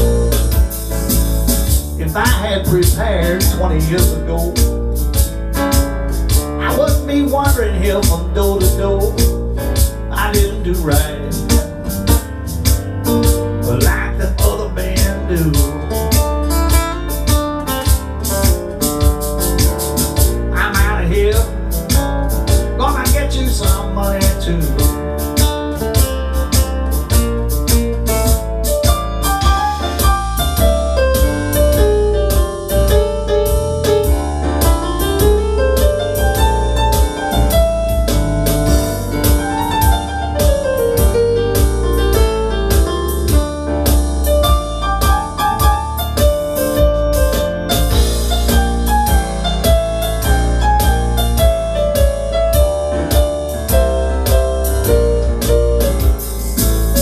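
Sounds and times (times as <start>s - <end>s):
beat and bass: 0.0s - 57.0s
piano-like keyboard melody: 0.0s - 57.0s.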